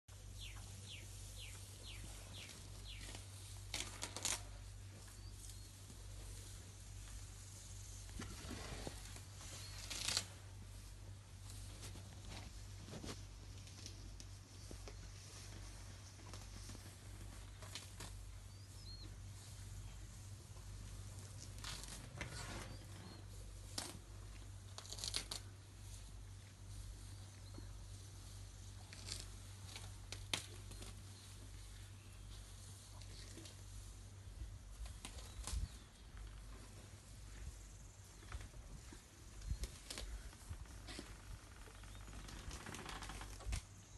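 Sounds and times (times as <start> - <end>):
low steady hum: 0.1 - 43.9
grass ripping: 0.4 - 5.6, 8.1 - 10.4, 24.6 - 25.5, 28.8 - 31.0
rustling and tearing: 0.4 - 18.8, 19.5 - 26.0, 28.3 - 37.1, 38.1 - 43.7.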